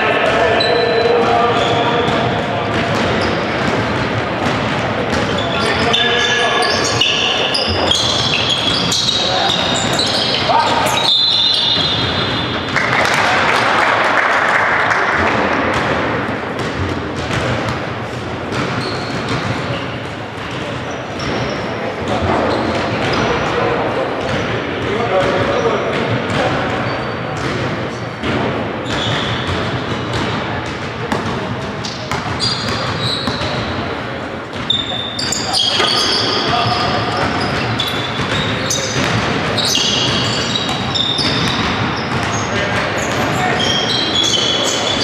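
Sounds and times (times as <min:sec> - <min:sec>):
indoor hall noise: 0:00.0 - 0:45.0
murmur of voices: 0:00.0 - 0:45.0
basketball bouncing on court: 0:00.2 - 0:23.5, 0:24.2 - 0:45.0
shoe squeaks: 0:00.4 - 0:02.4, 0:03.0 - 0:03.7, 0:05.1 - 0:12.6, 0:18.7 - 0:19.4, 0:28.8 - 0:29.6, 0:31.8 - 0:33.8, 0:34.5 - 0:45.0.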